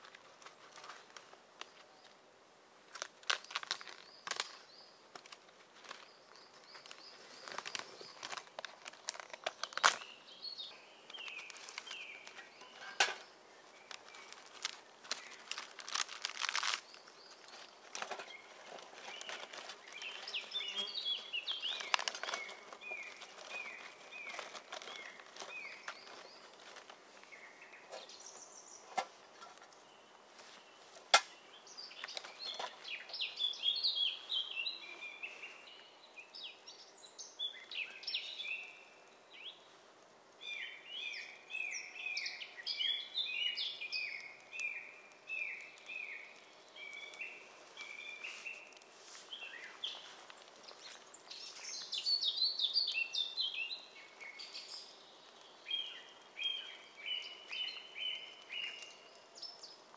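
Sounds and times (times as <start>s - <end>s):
crackles and clicks: 0.0s - 2.2s, 2.8s - 28.1s, 30.4s - 33.2s, 44.0s - 52.1s, 54.0s - 59.9s
small birds chirping: 0.0s - 59.9s
sharp cracks: 2.9s - 6.0s, 6.8s - 10.1s, 13.9s - 18.2s, 31.0s - 31.4s.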